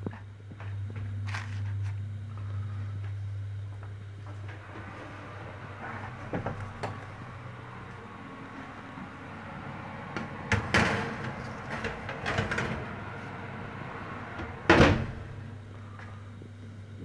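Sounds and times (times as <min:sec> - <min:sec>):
steady low hum: 0:00.0 - 0:17.0
kitchen knocks and clatters: 0:10.2 - 0:13.0
cupboard door banging shut: 0:14.7 - 0:15.4.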